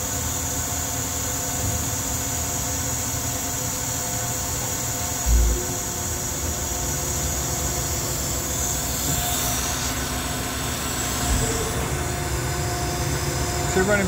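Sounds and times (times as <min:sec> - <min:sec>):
alternator spinning with hum and whine: 0:00.0 - 0:14.0
low thump: 0:05.3 - 0:05.8.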